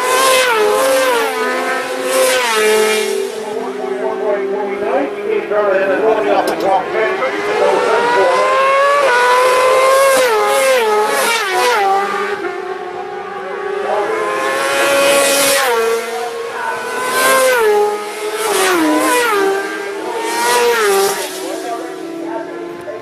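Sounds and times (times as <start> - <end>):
racing motorcycle engines revving: 0.0 - 23.0.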